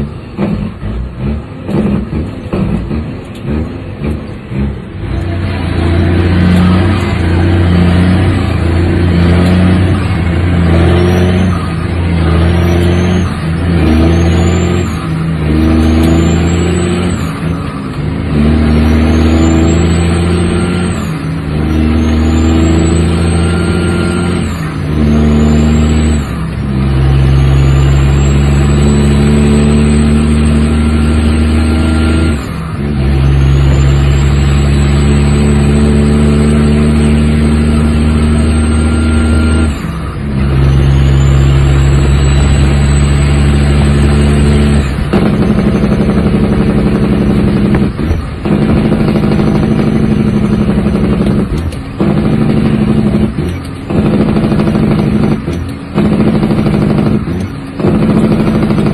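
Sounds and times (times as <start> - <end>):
diesel truck engine shifting gears: 0.0 - 58.9
turbo whistle: 27.0 - 31.2, 40.5 - 44.8.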